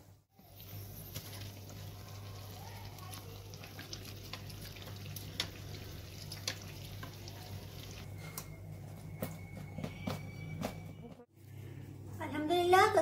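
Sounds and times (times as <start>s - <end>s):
deep-frying in hot oil: 0.1s - 8.2s.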